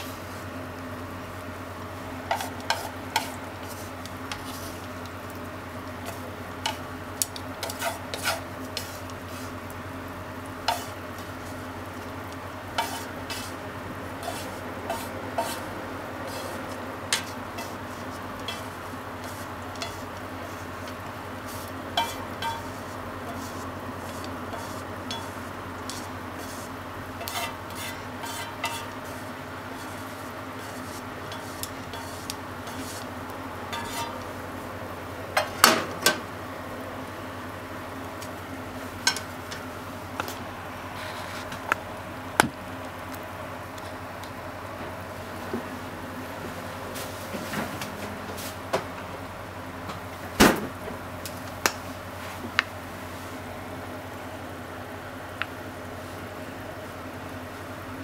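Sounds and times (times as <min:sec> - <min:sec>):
steady low hum: 0:00.0 - 0:35.6
chopsticks scraping a frying pan: 0:02.2 - 0:05.1, 0:05.9 - 0:09.8, 0:10.4 - 0:13.6, 0:14.2 - 0:34.3, 0:39.0 - 0:39.6, 0:40.2 - 0:41.7.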